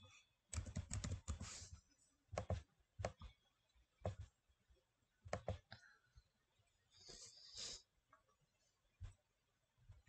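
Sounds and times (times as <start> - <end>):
keyboard typing: 0.5 - 1.6, 2.3 - 3.4, 5.3 - 5.7.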